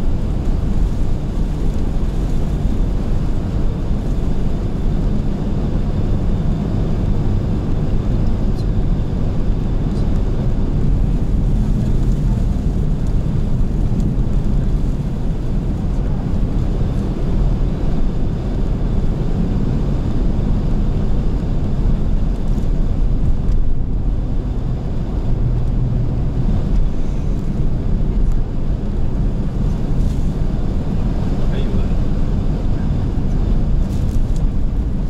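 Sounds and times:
car engine and tyres rumble: 0.0s - 35.0s
strong wind: 0.0s - 35.0s.

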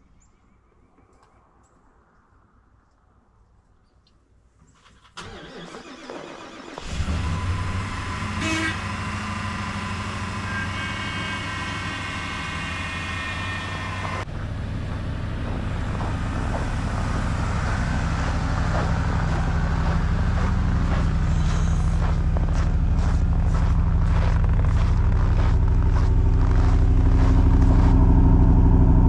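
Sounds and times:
truck engine idling: 6.8s - 29.0s.

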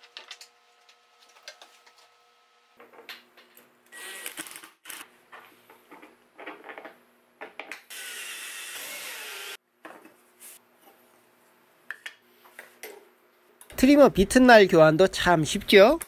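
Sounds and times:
cordless drill drilling into wood: 7.9s - 9.6s.

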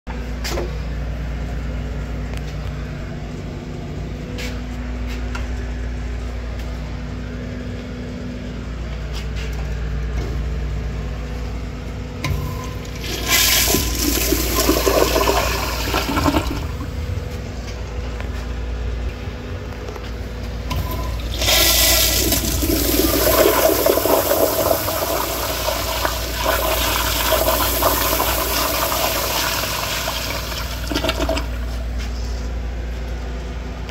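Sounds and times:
steady low hum: 0.1s - 33.9s
toilet flushing: 12.3s - 17.0s, 20.7s - 31.8s.

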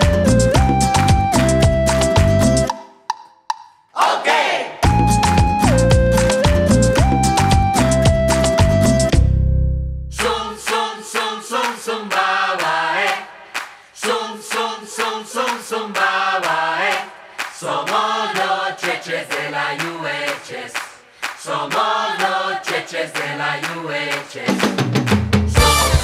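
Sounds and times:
group of voices singing: 3.9s - 4.8s, 10.2s - 25.0s.

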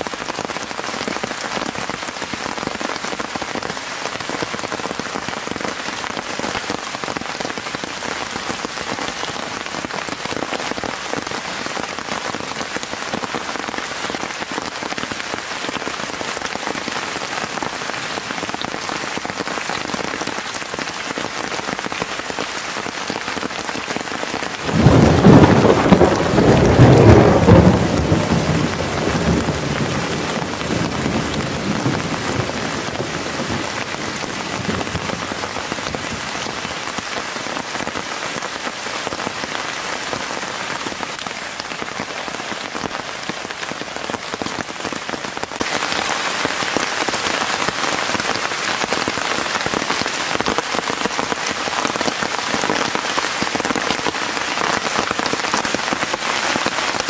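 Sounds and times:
heavy rain: 0.0s - 57.0s
thunder rumble: 24.6s - 35.7s.

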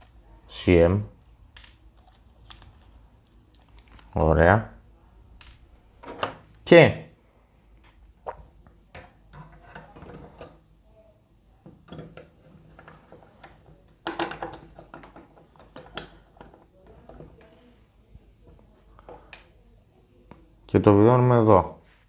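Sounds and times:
parts clattering: 11.7s - 17.5s.

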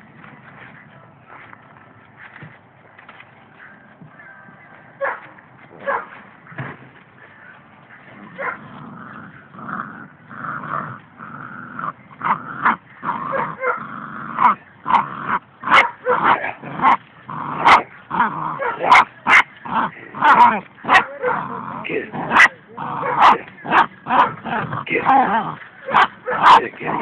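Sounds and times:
dog growling and whining: 8.2s - 27.0s.

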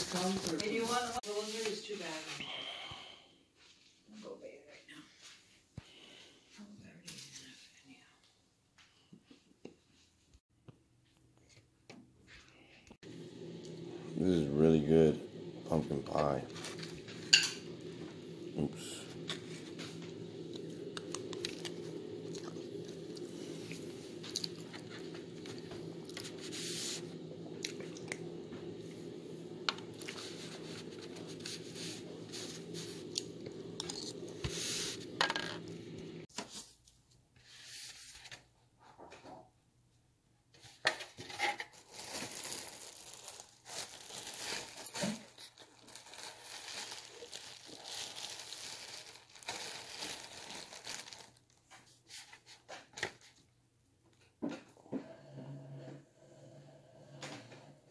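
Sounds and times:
steady low hum: 13.0s - 36.3s
plastic packaging crinkling and tearing: 16.0s - 18.1s, 41.2s - 52.3s.

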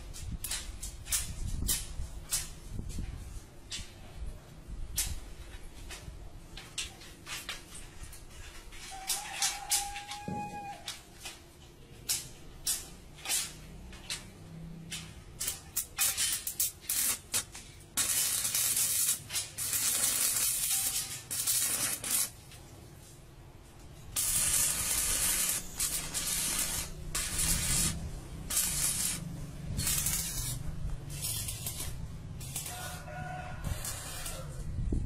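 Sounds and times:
welding arc crackling and hissing: 0.0s - 3.0s, 12.1s - 14.3s, 14.9s - 22.6s, 24.0s - 34.7s.

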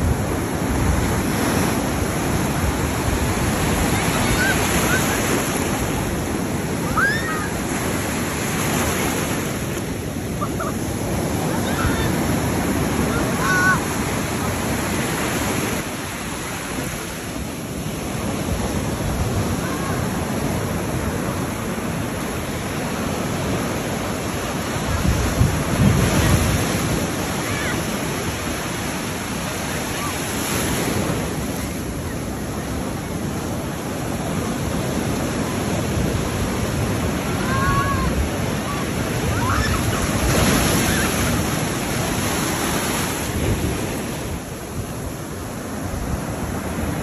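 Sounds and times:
ocean surf breaking: 0.0s - 47.0s
wind buffeting microphone: 22.9s - 27.4s.

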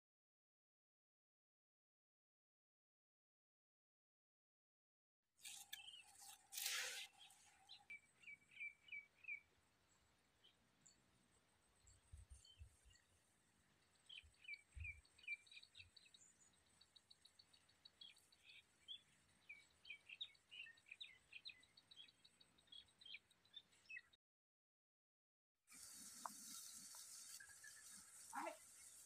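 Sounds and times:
small birds chirping: 5.4s - 11.0s, 13.8s - 24.2s, 25.7s - 29.0s.

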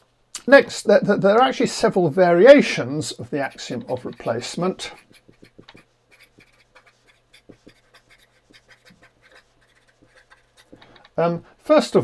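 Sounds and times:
marker scratching on paper: 3.1s - 10.8s.

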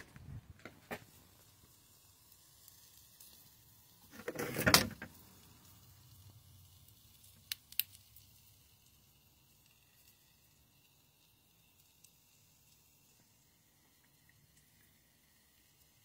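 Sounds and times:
scraping sliding noise: 4.1s - 4.9s.

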